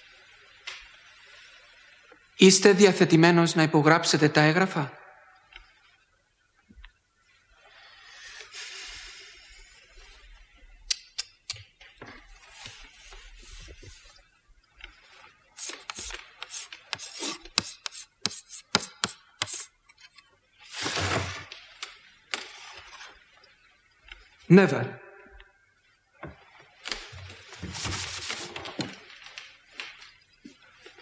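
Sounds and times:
scratching on a slate: 0:15.6 - 0:20.2.

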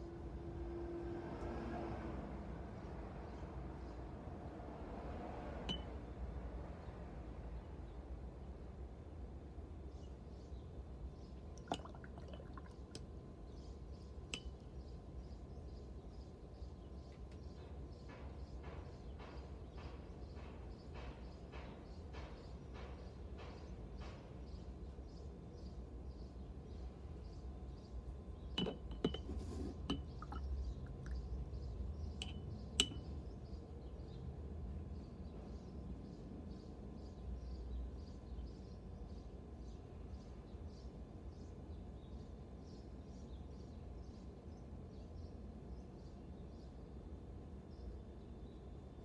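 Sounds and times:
drip-like plink: 0:05.7 - 0:06.0, 0:11.6 - 0:13.0, 0:14.3 - 0:14.6, 0:32.2 - 0:33.1
paintbrush clinking against glass jar: 0:05.7 - 0:06.0, 0:28.6 - 0:31.2, 0:32.2 - 0:33.1
water swishing: 0:11.6 - 0:13.0.

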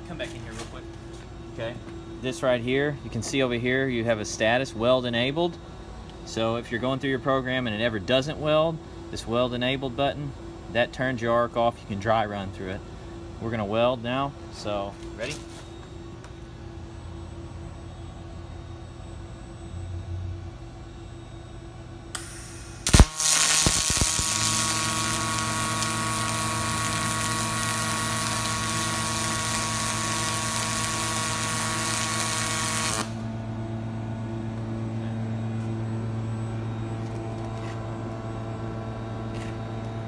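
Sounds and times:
low steady hum: 0:00.0 - 0:40.0
welding arc buzzing hiss: 0:22.0 - 0:33.6
welding arc crack: 0:22.2 - 0:33.3.

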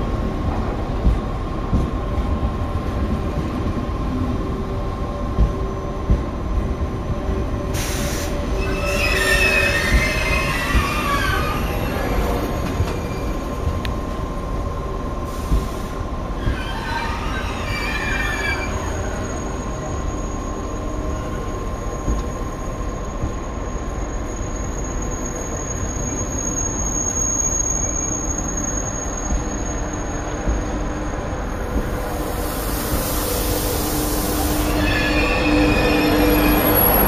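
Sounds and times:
train wheels rumbling on rails: 0:00.0 - 0:37.0
wavering wheel squeals: 0:08.5 - 0:13.8, 0:16.4 - 0:30.9, 0:33.9 - 0:37.0
thin high squeal: 0:08.6 - 0:12.1, 0:16.4 - 0:19.6, 0:34.2 - 0:37.0.

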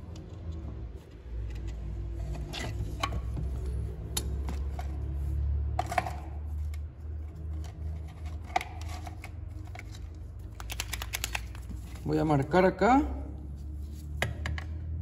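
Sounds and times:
plastic parts clicking and rattling: 0:05.8 - 0:12.1.

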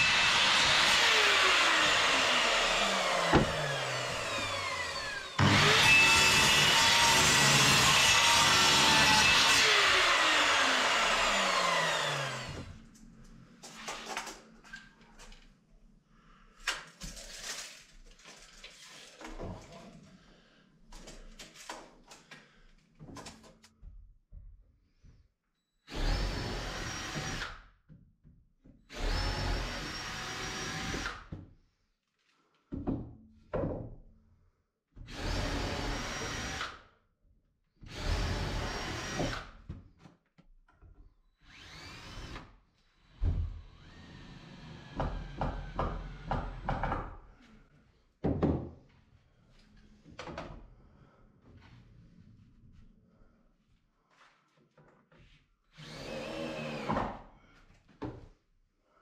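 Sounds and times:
mitre saw motor winding down: 0:00.0 - 0:06.4, 0:09.9 - 0:12.5
cordless drill driving screws: 0:00.0 - 0:12.7, 0:25.9 - 0:27.5, 0:28.9 - 0:31.2, 0:37.9 - 0:39.5, 0:41.4 - 0:42.5, 0:55.8 - 0:57.0
timber knocks and clicks: 0:03.3 - 0:03.8.

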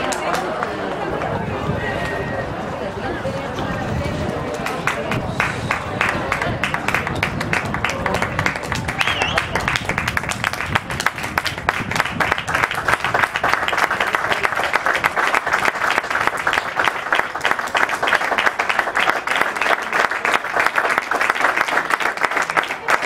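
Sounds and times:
many hands clapping: 0:00.0 - 0:01.3, 0:04.5 - 0:23.0.

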